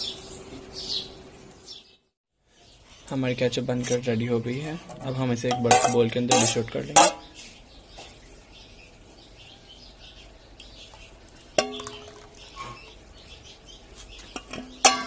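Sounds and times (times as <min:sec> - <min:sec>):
metal kitchenware clink: 0:04.9 - 0:07.3, 0:11.6 - 0:12.5, 0:14.4 - 0:15.0.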